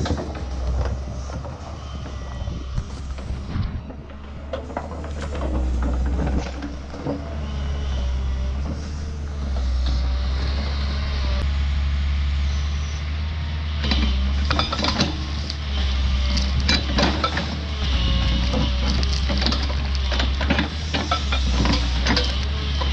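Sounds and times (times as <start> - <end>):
excavator diesel engine running: 0.0 - 22.9
wood cracking and crunching: 14.5 - 22.9.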